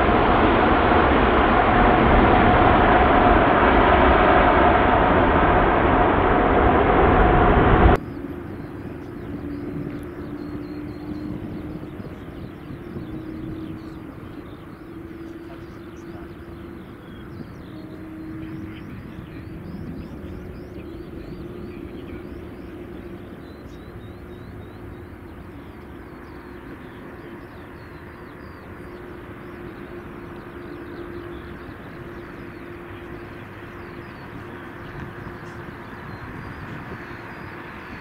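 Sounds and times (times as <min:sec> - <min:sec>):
steady hum: 0:00.0 - 0:17.0
jet engines rumbling: 0:00.0 - 0:38.0.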